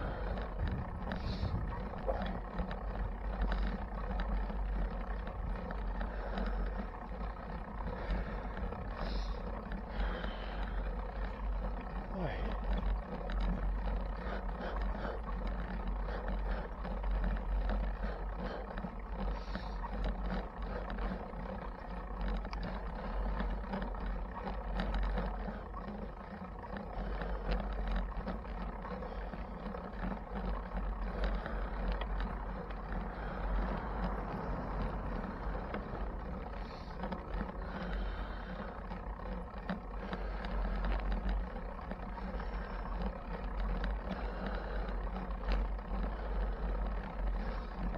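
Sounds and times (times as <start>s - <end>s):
wind rumbling on microphone: 0.0s - 3.2s
bicycle rattles and clicks: 0.0s - 47.9s
bicycle road noise: 0.0s - 47.9s.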